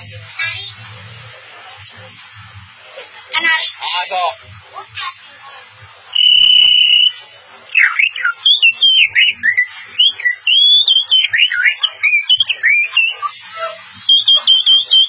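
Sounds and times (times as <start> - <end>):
boy whistling birdsong: 6.2 - 15.0.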